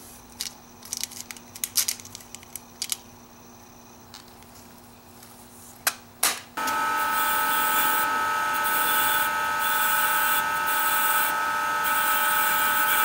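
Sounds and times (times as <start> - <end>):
bench grinder whine: 6.6 - 13.0
wire wheel scratching screw: 6.6 - 13.0.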